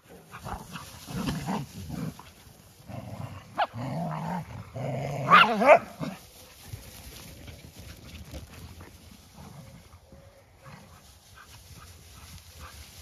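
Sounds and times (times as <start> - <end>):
dogs growling: 0.1 - 6.2.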